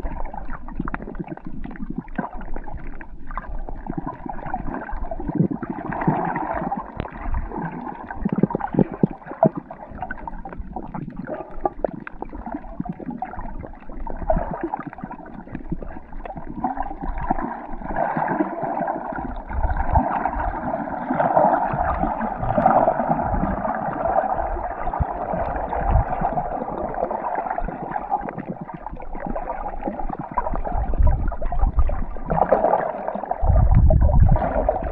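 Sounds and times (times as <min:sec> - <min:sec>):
muffled underwater gurgling: 0:00.0 - 0:34.9
low rumbles: 0:33.4 - 0:34.9.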